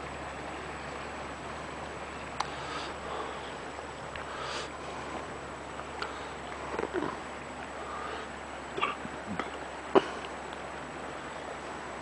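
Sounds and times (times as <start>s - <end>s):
steady hiss: 0.0s - 12.0s
short breathy hisses: 4.3s - 4.8s.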